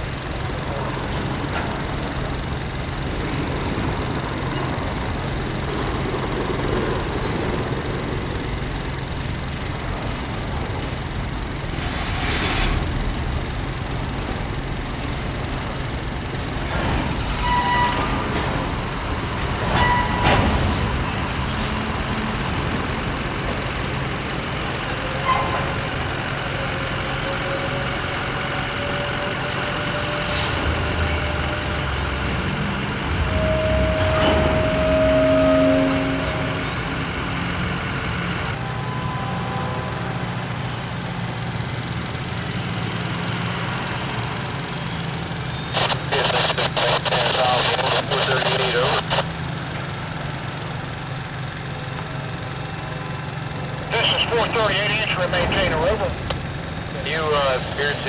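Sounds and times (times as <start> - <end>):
train couplers clanking: 0.0 - 45.8
freight train rumbling: 0.0 - 58.0.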